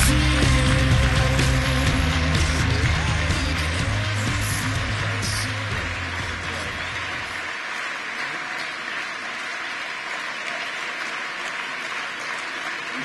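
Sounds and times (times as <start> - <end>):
low music: 0.0 - 7.4
large audience applauding: 0.0 - 13.0.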